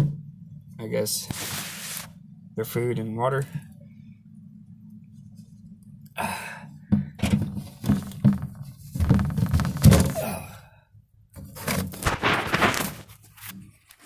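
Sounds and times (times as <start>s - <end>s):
low steady hum: 0.0s - 14.0s
objects knocking and thunking: 6.8s - 10.5s.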